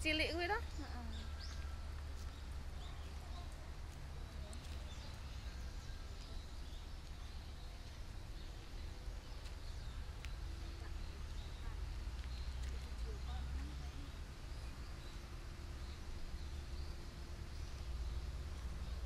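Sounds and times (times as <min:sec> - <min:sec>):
faint bird chirps: 0:00.6 - 0:19.0
footsteps on dirt path: 0:01.2 - 0:08.0, 0:08.6 - 0:13.9.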